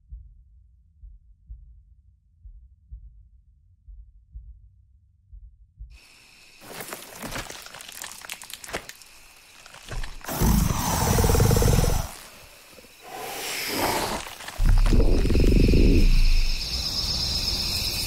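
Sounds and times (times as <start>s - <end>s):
monster growl: 9.9s - 12.4s, 13.0s - 16.1s
monster roaring: 10.0s - 12.4s.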